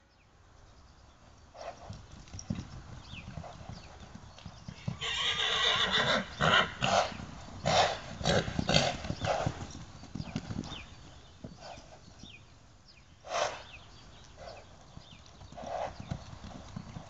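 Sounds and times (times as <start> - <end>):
horse hoofbeats thudding on sand: 1.5 - 5.0, 6.3 - 12.5, 13.3 - 17.0
horse snorting: 5.0 - 9.7.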